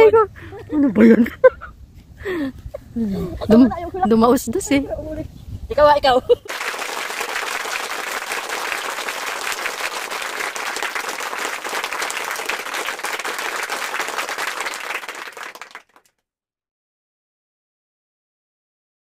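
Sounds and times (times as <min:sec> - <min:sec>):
crowd applauding: 0:06.5 - 0:16.1.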